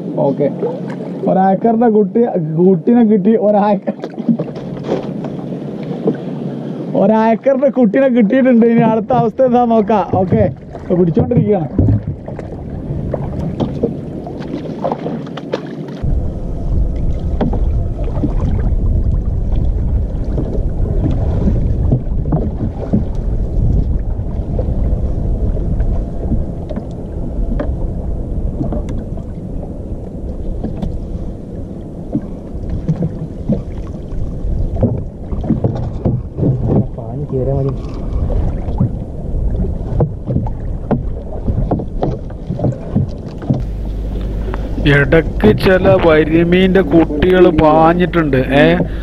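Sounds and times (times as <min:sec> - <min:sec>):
water lapping against boat: 0:00.0 - 0:49.0
knocks against boat hull: 0:11.2 - 0:12.4
low rumble: 0:16.0 - 0:49.0.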